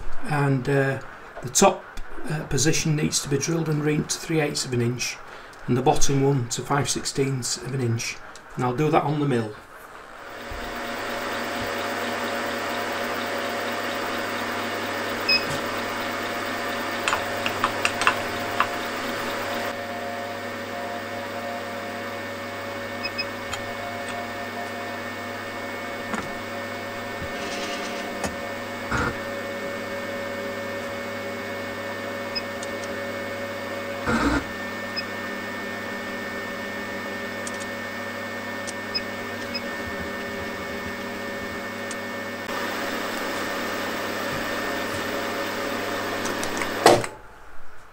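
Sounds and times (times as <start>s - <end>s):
milling machine spindle whine: 10.0s - 46.9s
sharp clicks: 37.4s - 37.7s.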